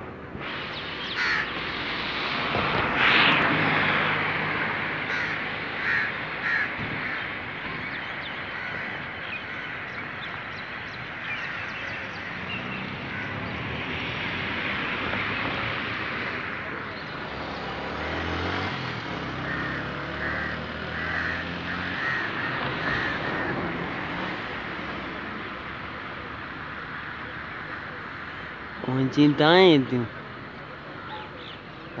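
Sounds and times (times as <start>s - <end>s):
outdoor background hiss: 0.0s - 22.4s, 23.6s - 32.0s
crows cawing: 1.1s - 1.6s, 4.9s - 12.1s, 13.0s - 13.6s, 16.2s - 16.9s, 19.4s - 24.5s, 26.7s - 28.8s.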